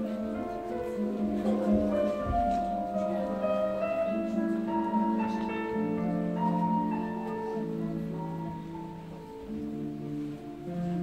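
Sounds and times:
instrumental music: 0.0 - 11.0.

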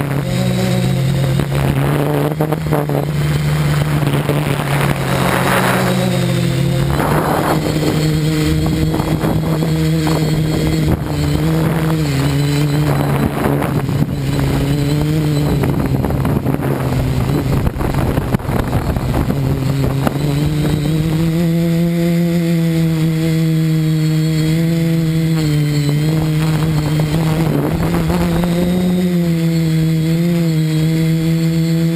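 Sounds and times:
drone motors and propellers buzzing: 0.0 - 31.9.

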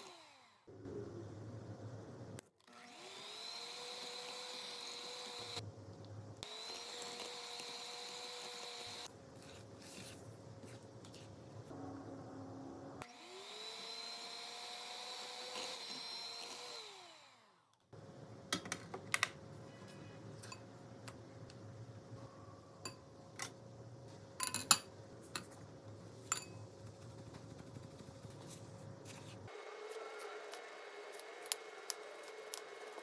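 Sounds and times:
electric mixer whining: 0.0 - 0.7, 2.7 - 5.6, 6.4 - 9.1, 13.0 - 17.6, 29.5 - 33.0.

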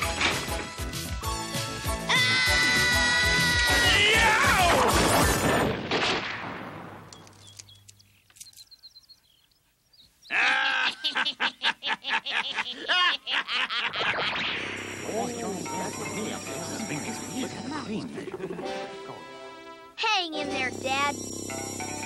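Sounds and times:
cartoon music: 1.9 - 5.0, 15.0 - 22.0
fast warbling figure: 13.9 - 18.6, 20.4 - 22.0.

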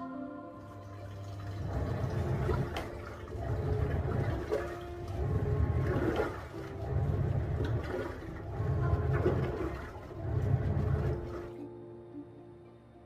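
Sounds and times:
washing machine motor rumble: 0.6 - 11.6
water churning and sloshing: 0.6 - 11.6.

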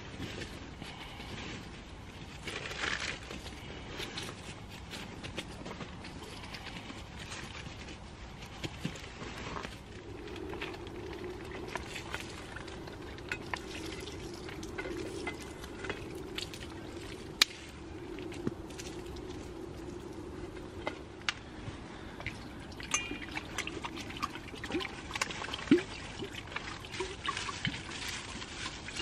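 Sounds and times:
pops and crackles: 8.5 - 21.5.

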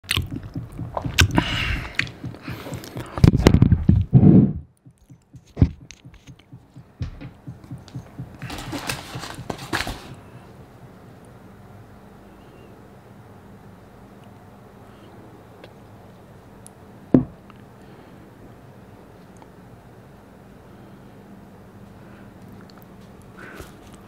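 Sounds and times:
microphone handling thumps: 0.1 - 10.1.

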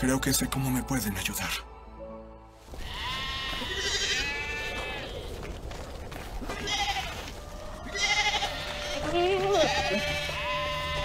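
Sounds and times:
sheep bleating: 2.7 - 5.5, 6.4 - 11.0.

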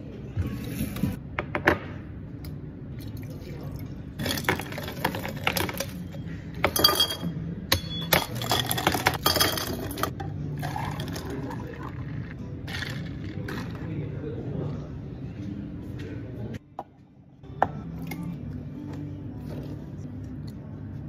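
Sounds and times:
ice cubes clattering into jars: 4.2 - 6.0, 8.1 - 10.1.

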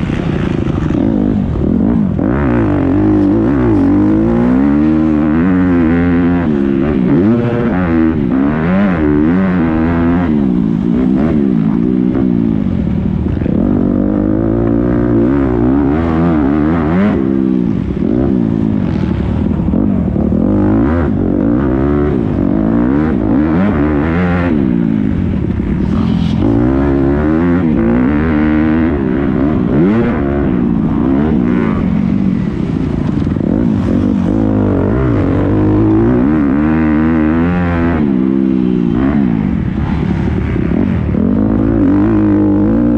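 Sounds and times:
motocross bike engine revving: 0.0 - 42.9.

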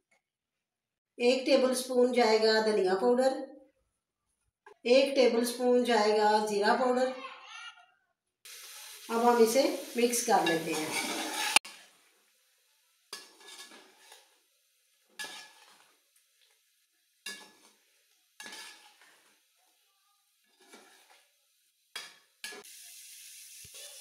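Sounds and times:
metal spoon scraping metal pan: 10.3 - 11.8, 13.1 - 14.4, 15.2 - 16.0, 17.2 - 17.8, 18.4 - 19.3, 20.4 - 21.2.

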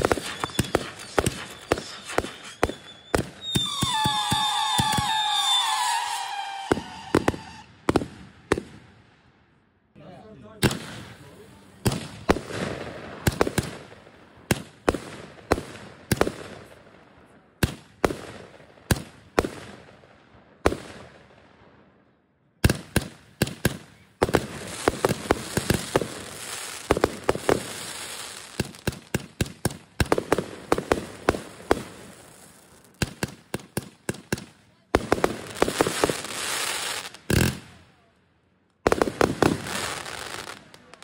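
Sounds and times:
fireworks bangs: 0.0 - 8.9, 10.6 - 17.0, 22.6 - 38.0, 38.8 - 41.0.

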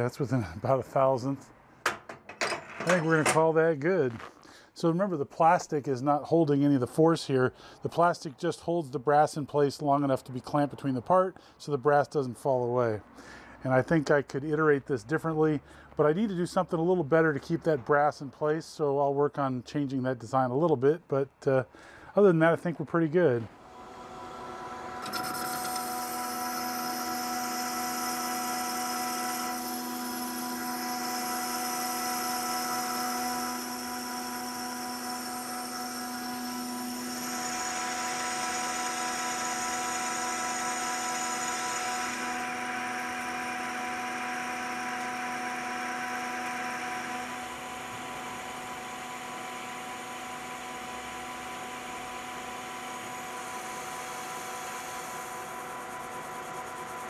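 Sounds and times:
metal lathe whining: 23.7 - 57.0
tool cutting metal hiss: 53.6 - 57.0.

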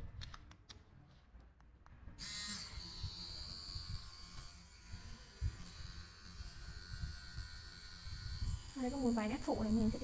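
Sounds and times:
tattoo machine buzzing: 2.2 - 10.0.

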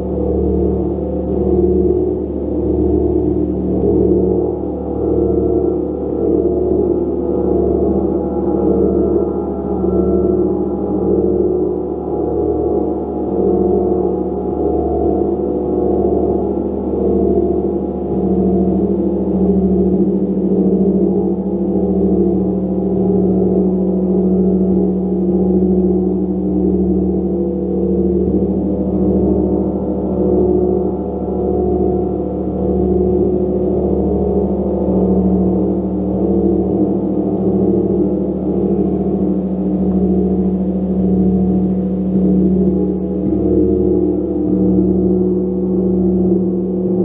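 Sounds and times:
gong drone: 0.0 - 47.0.

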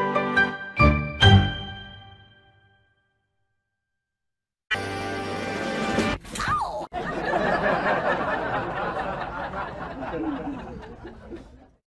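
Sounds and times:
people laughing and chattering: 6.9 - 11.8.

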